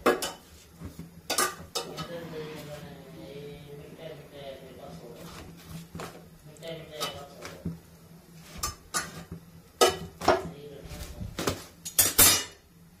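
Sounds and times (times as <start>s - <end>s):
low steady hum: 0.0s - 13.0s
metal tongs clinking on grate: 11.8s - 12.6s.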